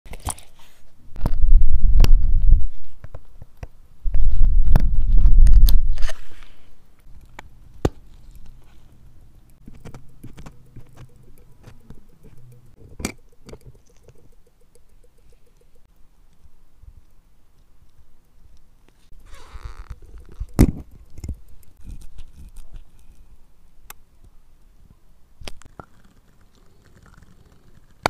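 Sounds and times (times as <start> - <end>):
small metallic clicks and taps: 7.0 - 19.3, 19.9 - 23.2.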